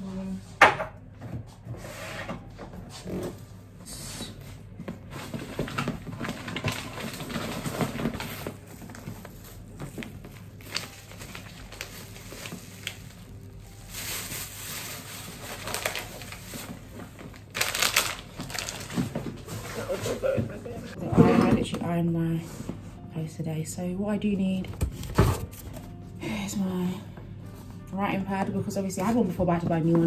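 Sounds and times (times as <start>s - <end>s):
plastic bags rustling: 4.6s - 21.0s
items clicking and knocking: 4.8s - 11.4s.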